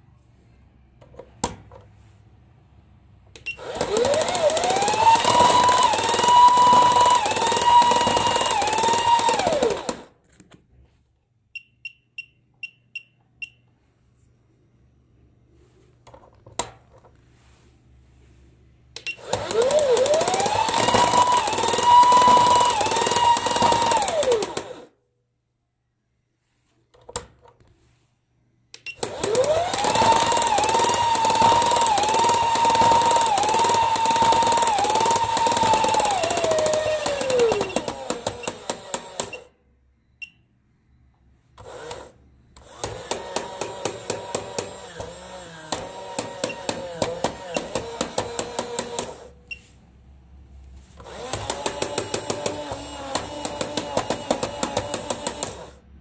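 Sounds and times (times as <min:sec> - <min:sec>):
toy motor whining: 0:03.6 - 0:10.1, 0:19.1 - 0:24.9, 0:29.0 - 0:39.5, 0:41.6 - 0:49.3, 0:51.0 - 0:55.8
plastic gear rattle: 0:29.2 - 0:39.4.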